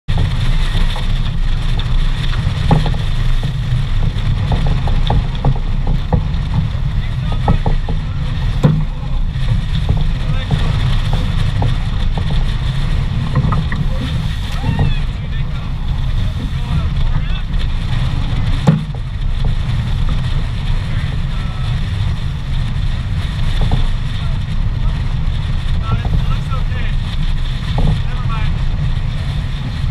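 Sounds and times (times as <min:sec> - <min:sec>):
water rushing along boat hull: 0:00.0 - 0:29.9
wind buffeting microphone: 0:00.0 - 0:29.9
sharp thump: 0:08.6 - 0:09.0, 0:18.6 - 0:19.0.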